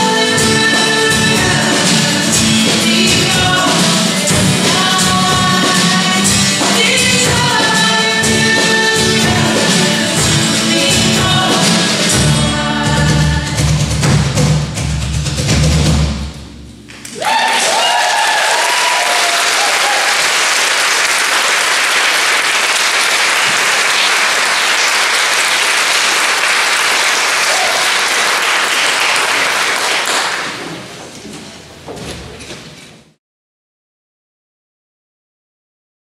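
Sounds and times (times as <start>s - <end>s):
audience applauding: 16.9s - 30.9s.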